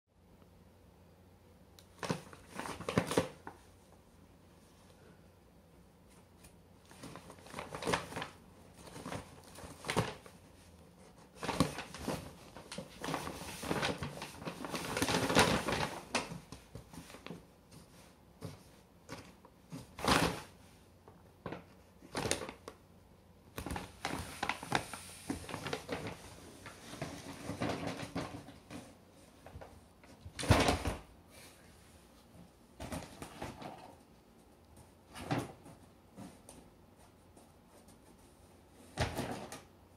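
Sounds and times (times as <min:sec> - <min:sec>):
paper bag rustling and crinkling: 0:02.0 - 0:03.6, 0:06.8 - 0:20.6, 0:21.4 - 0:22.8, 0:23.6 - 0:28.8.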